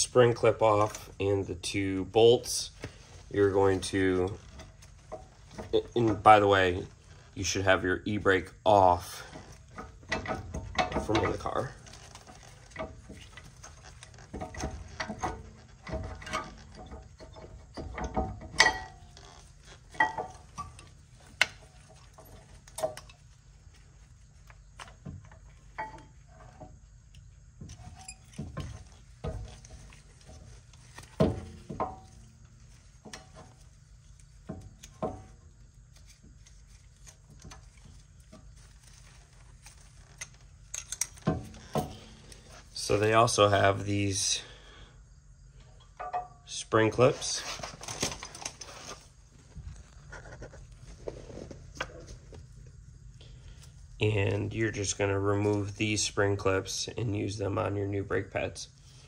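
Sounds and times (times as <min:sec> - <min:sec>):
metallic clinks and knocks: 0:09.2 - 0:23.9, 0:25.0 - 0:26.8, 0:27.6 - 0:42.9, 0:45.8 - 0:46.5.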